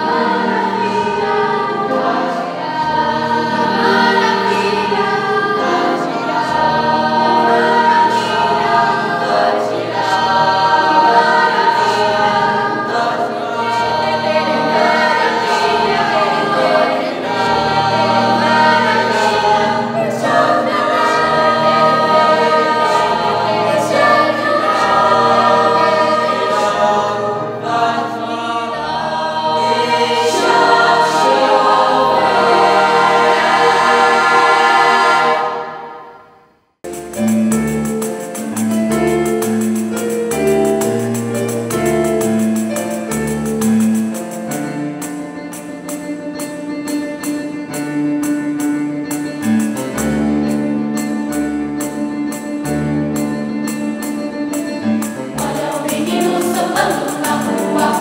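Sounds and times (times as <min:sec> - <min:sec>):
youth choir singing: 0:00.0 - 0:36.4, 0:55.0 - 0:58.0.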